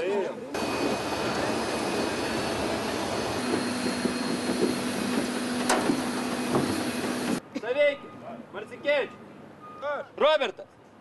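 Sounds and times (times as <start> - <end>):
jet turbine noise: 0.5 - 7.4.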